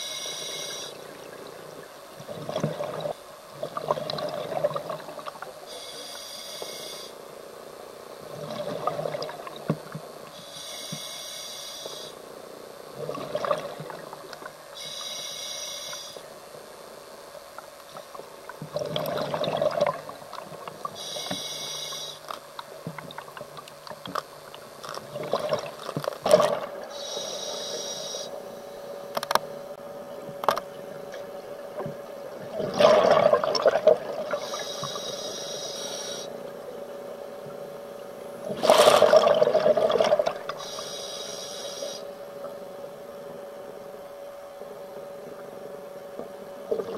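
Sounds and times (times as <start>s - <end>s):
regulator hissing on inhale: 0.0s - 1.0s, 5.7s - 7.2s, 10.3s - 12.2s, 14.7s - 16.3s, 20.9s - 22.3s, 26.9s - 28.4s, 34.3s - 36.4s, 40.6s - 42.2s
faint steady hum: 0.0s - 46.9s
exhaled bubbles rushing: 13.0s - 14.0s, 18.7s - 20.1s, 25.1s - 26.9s, 32.4s - 34.4s, 38.4s - 40.6s.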